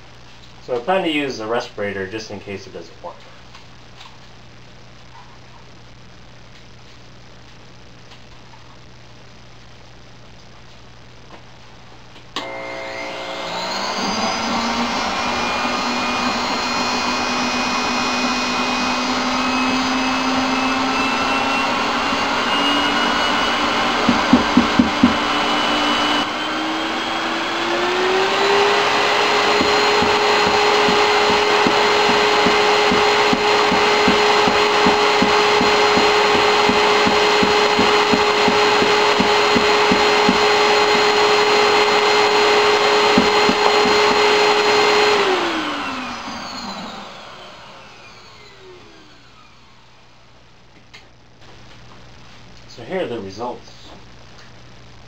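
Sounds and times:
electric suction fan whining: 12.4 - 50.3.

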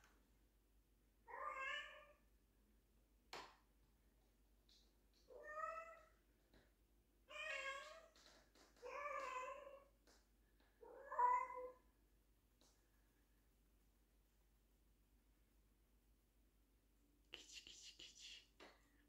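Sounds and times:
cat meowing: 1.3 - 2.2, 10.8 - 11.8.

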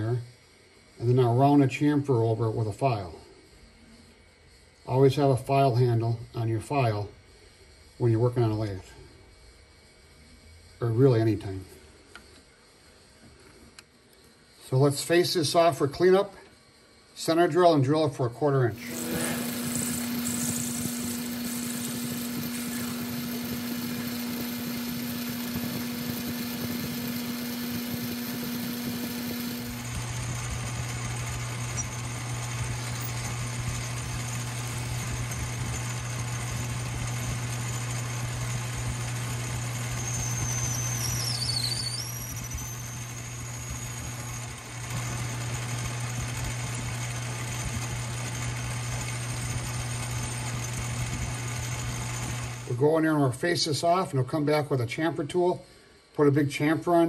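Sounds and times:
lathe motor hum: 18.7 - 52.8
high squeal: 18.8 - 30.0, 31.5 - 35.4, 39.6 - 44.5.

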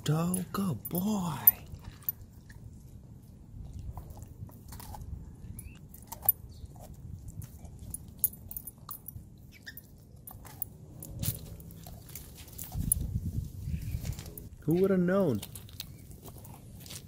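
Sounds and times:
collar tags jingling: 0.0 - 2.4, 5.4 - 6.6, 7.3 - 14.7.

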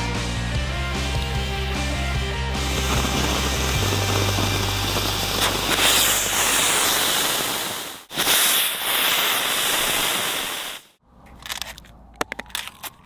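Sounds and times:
fireworks hissing: 1.2 - 11.0.

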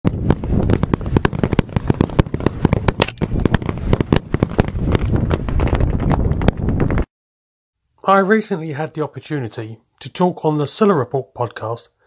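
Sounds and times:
rapid gunfire: 0.1 - 5.4.

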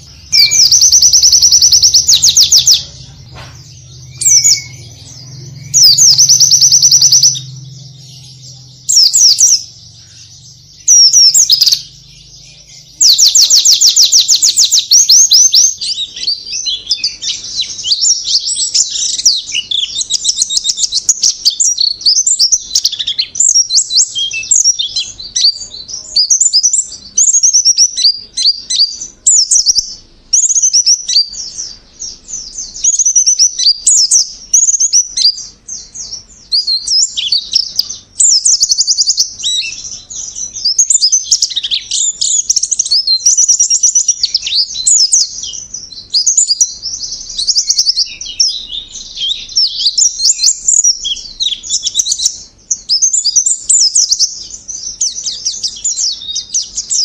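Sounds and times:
fast bird trill: 0.0 - 25.5
bird twittering song: 0.0 - 57.0.

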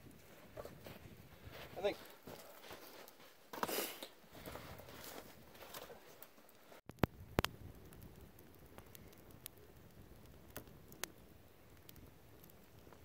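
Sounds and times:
campfire popping: 0.0 - 13.0
footsteps in snow: 0.3 - 6.3.

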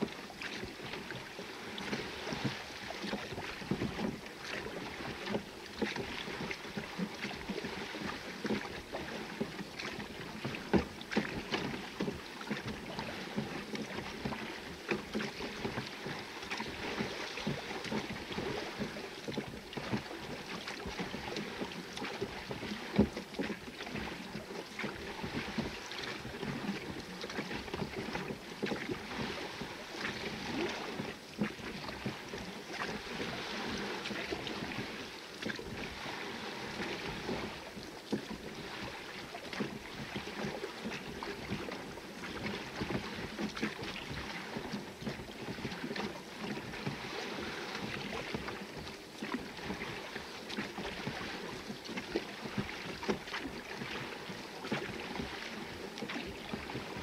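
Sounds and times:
oar knocks and splashes: 0.0 - 57.0
water lapping against hull: 0.0 - 57.0.

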